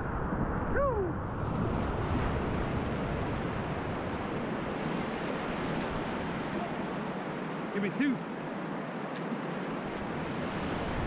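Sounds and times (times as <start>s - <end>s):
whitewater river rushing: 1.9s - 11.0s.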